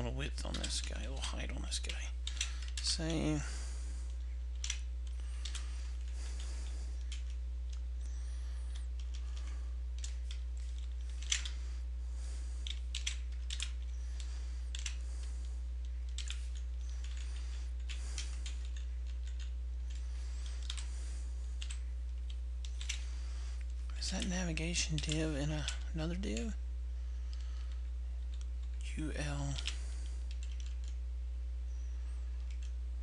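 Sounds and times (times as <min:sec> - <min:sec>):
low electrical hum: 0:00.0 - 0:33.0.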